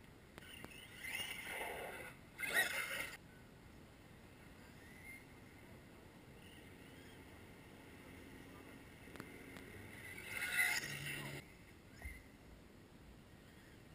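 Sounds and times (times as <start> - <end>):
rc cars whining past: 0.4 - 3.2, 4.6 - 5.6, 6.4 - 12.2.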